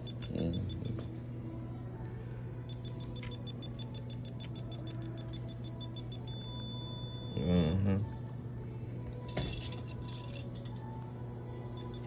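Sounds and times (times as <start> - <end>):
diamond tester beeping rapidly: 0.0 - 1.1, 2.7 - 7.8, 11.8 - 12.0.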